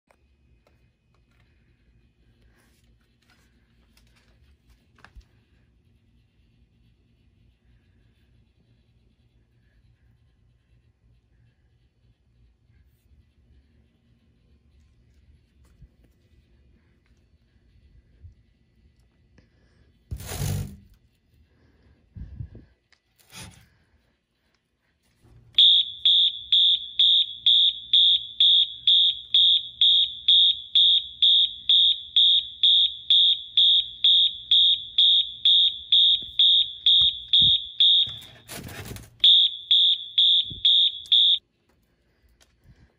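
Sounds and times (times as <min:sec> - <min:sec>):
pulsing fire alarm horn: 0:25.6 - 0:38.6, 0:39.2 - 0:41.4.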